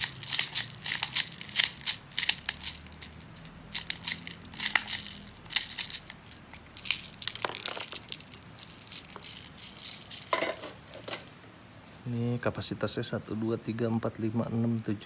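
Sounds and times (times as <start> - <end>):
plastic pellets clicking into magazine: 0.0 - 10.3.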